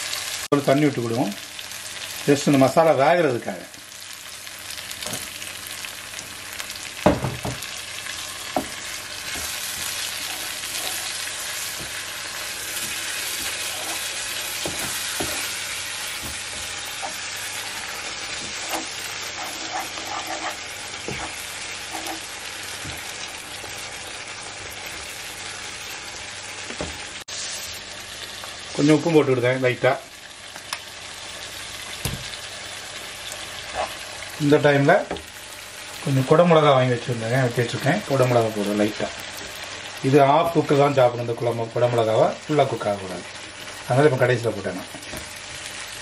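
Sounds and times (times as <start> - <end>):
sauce sizzling in a frying pan: 0.0 - 46.0
wooden spatula knocking on pan: 7.0 - 7.7, 8.5 - 9.6.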